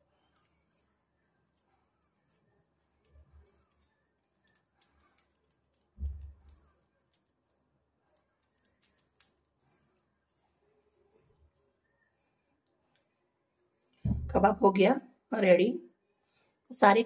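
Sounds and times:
hands shaping dough: 0.0s - 14.5s
dull thump: 14.0s - 14.5s.

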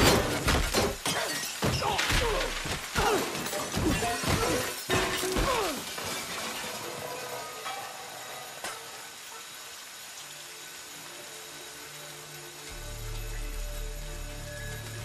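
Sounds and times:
pots and pans crashing and ringing: 0.0s - 1.9s, 3.4s - 7.8s
glass shattering: 0.0s - 8.0s.

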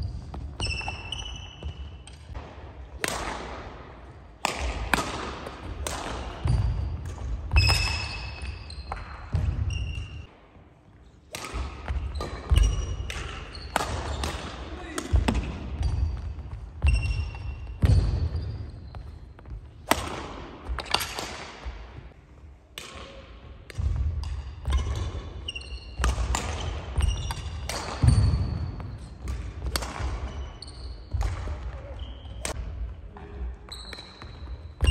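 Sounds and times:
shoes squeaking on floor: 0.0s - 2.3s, 7.5s - 10.3s, 12.1s - 14.4s, 15.8s - 19.8s, 24.7s - 29.3s, 30.2s - 31.2s, 33.6s - 34.9s
racket striking shuttlecock: 0.7s - 3.7s, 4.4s - 10.1s, 11.3s - 15.9s, 19.8s - 21.6s, 26.0s - 30.3s.

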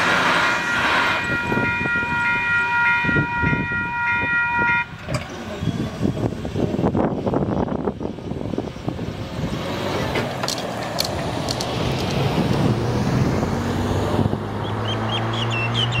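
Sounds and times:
car engine and tyres: 0.0s - 2.7s, 3.3s - 16.0s
wind on microphone: 3.0s - 9.9s, 11.2s - 14.6s
low engine hum: 5.1s - 16.0s.

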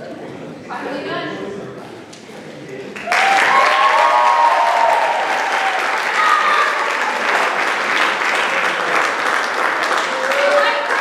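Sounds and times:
audience applauding: 3.0s - 11.0s
shouted cheers and whoops: 3.1s - 7.0s, 10.0s - 11.0s.

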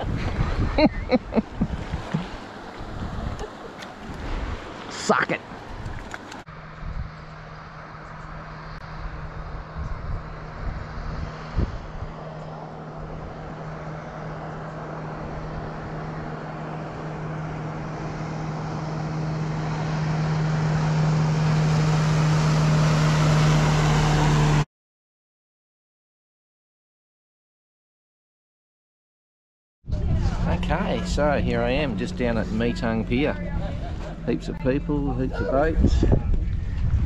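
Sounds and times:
motorboat engine running fast: 0.0s - 24.6s, 29.9s - 37.0s
water and wind hiss: 0.0s - 24.6s.

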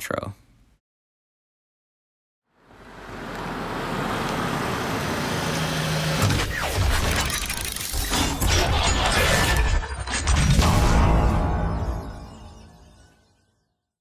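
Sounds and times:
crash-like hits: 6.2s - 12.8s.

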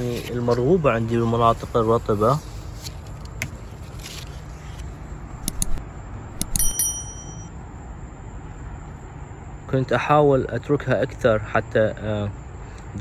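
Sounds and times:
quick clicks: 5.4s - 5.8s
bright bell ding: 6.4s - 7.5s.

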